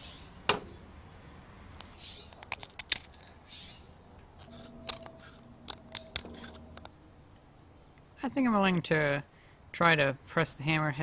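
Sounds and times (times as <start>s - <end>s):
knife scraping wood: 4.4s - 6.9s.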